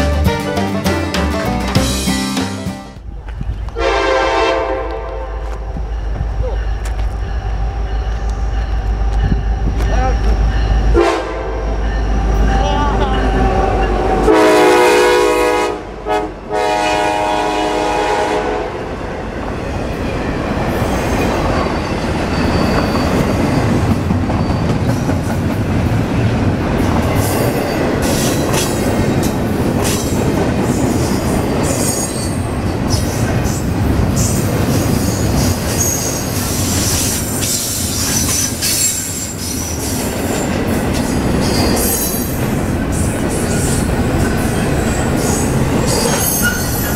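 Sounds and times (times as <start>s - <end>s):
train wheels rumbling on rail: 3.0s - 46.9s
train horn: 3.8s - 5.6s, 10.9s - 18.9s
high wheel squeal: 20.8s - 25.0s, 31.0s - 33.2s, 34.2s - 40.5s, 41.4s - 46.9s.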